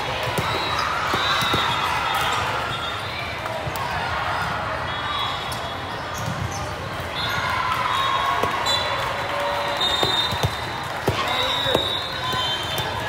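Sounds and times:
volleyballs bouncing and thudding: 0.0s - 2.8s, 6.1s - 7.6s, 8.2s - 13.0s.

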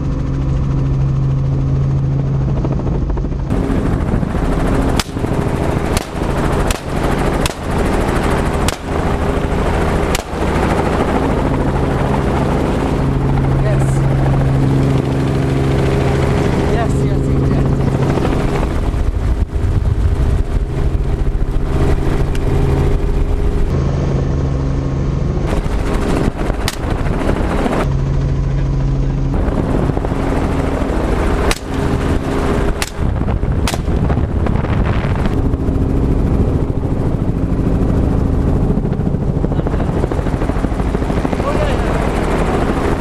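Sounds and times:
helicopter turbine and rotor: 0.0s - 43.0s
rifle shots: 4.9s - 10.8s, 26.6s - 26.9s, 31.4s - 32.0s, 32.8s - 34.0s.

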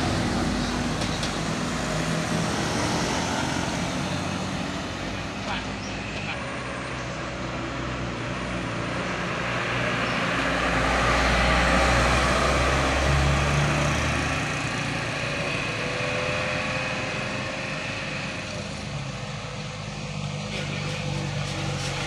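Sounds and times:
heavy trucks driving past: 0.0s - 22.0s.

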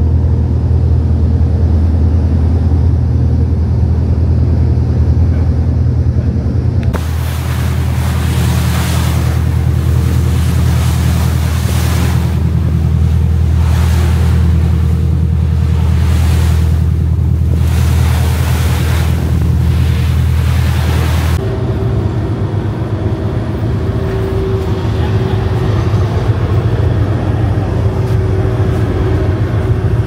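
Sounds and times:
boat engine running: 0.0s - 30.0s
wind: 0.0s - 30.0s
rushing water: 6.9s - 30.0s.

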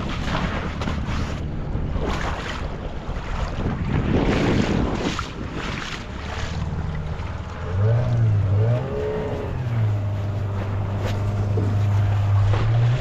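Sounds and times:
outboard motor revving: 0.0s - 13.0s.

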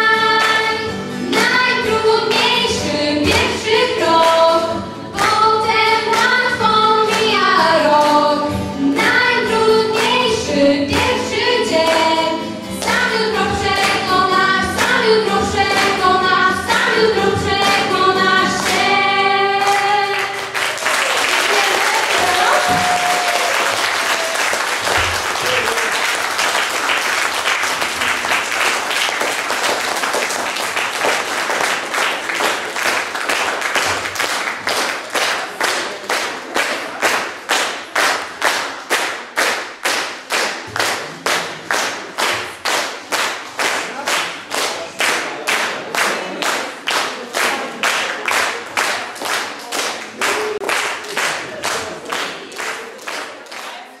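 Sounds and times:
rhythmic clapping in unison: 0.0s - 19.0s, 19.6s - 54.0s
audience applause: 19.6s - 54.0s.

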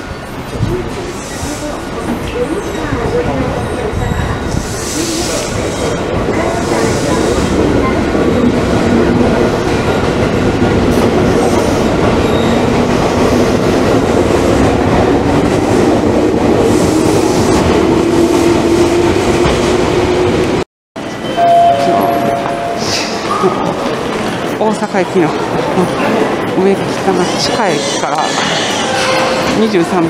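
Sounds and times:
electric train passing: 6.3s - 30.0s
short steady tone: 21.2s - 23.0s.

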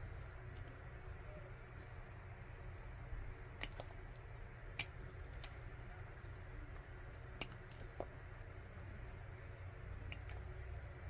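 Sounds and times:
low background hum: 0.0s - 11.0s
scissors snipping wire: 3.5s - 4.0s, 4.6s - 5.7s, 10.0s - 10.5s.

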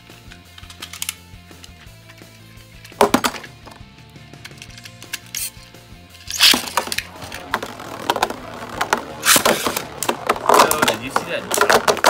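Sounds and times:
spinning tops launching rattle: 6.2s - 12.0s
spinning tops whirring and clattering: 6.2s - 12.0s
plastic clatter: 6.3s - 12.0s.

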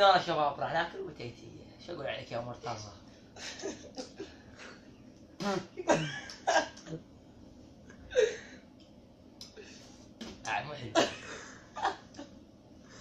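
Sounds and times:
young men making cough-like bursts: 5.4s - 7.0s.

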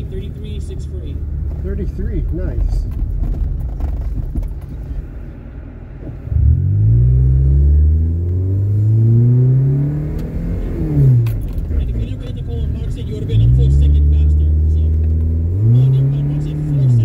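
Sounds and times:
car engine revving under throttle: 5.9s - 17.0s.

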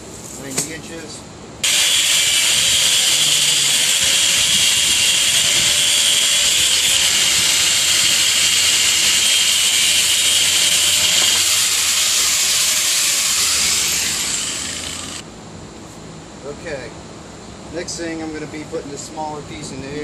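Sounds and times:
power tool whining cutting pipe: 1.6s - 15.2s.

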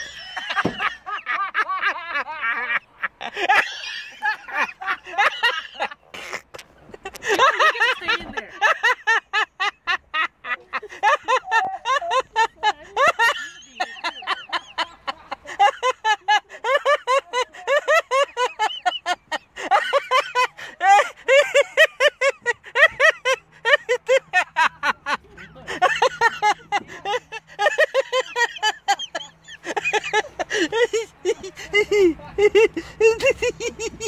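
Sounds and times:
high-pitched cackling laughter: 0.0s - 34.0s.

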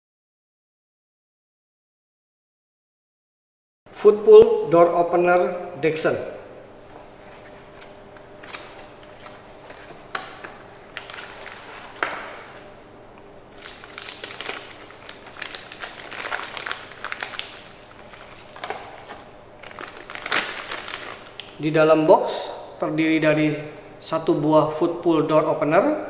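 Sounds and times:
plastic bag crinkling: 7.7s - 12.7s, 13.5s - 21.7s.

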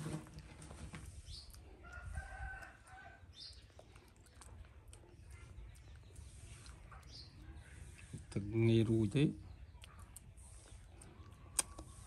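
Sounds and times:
faint rooster crowing: 1.8s - 3.4s.

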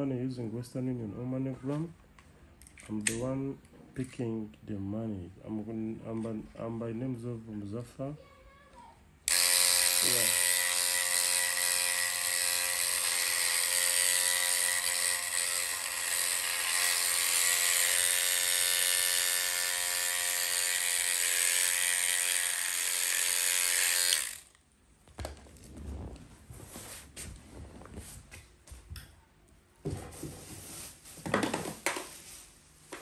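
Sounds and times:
electric hair machine buzzing: 9.3s - 24.6s.

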